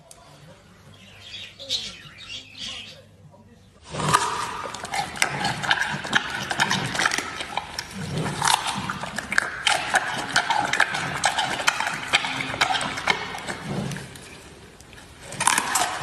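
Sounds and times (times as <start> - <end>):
panda chewing bamboo: 3.8 - 16.0.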